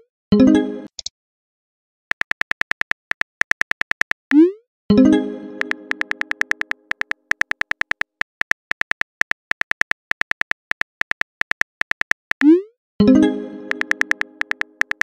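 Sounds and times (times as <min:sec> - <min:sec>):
phone keyboard clicks: 0:02.1 - 0:04.3, 0:05.6 - 0:12.5, 0:13.7 - 0:15.0.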